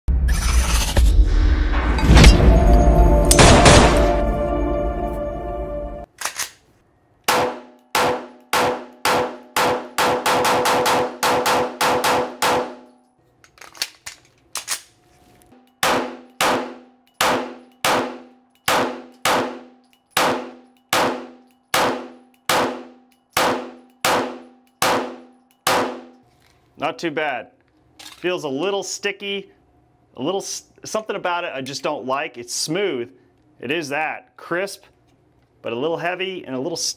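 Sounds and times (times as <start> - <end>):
pistol shots echoing indoors: 7.2 - 13.0, 15.7 - 26.2.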